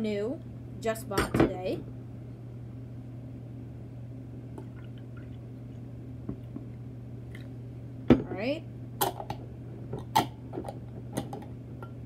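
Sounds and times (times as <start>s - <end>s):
low hum: 1.8s - 12.0s
liquid trickling into a cup: 4.6s - 5.8s.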